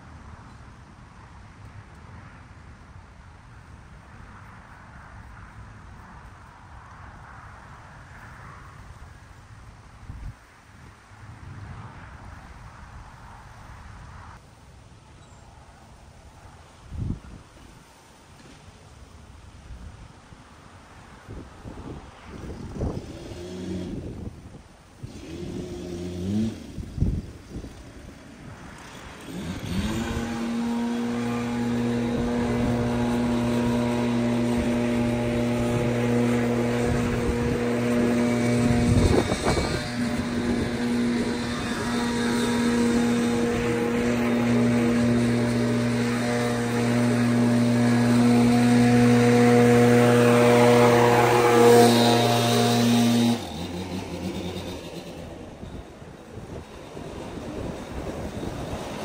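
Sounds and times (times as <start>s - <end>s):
leaf blower engine revving: 22.8s - 24.4s, 25.0s - 27.8s, 28.7s - 59.0s.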